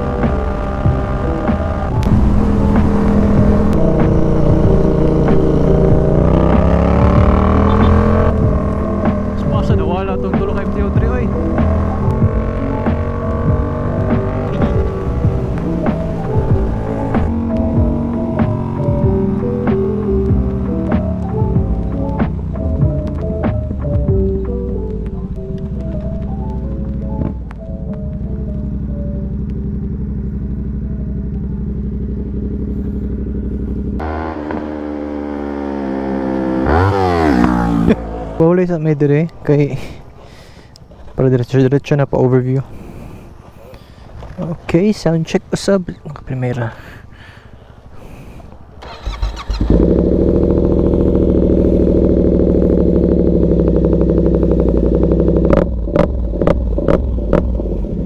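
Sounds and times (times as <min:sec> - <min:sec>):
brighter engine sound: 0:00.0 - 0:24.5
motorcycle engine running: 0:00.0 - 0:38.7, 0:48.8 - 0:58.0.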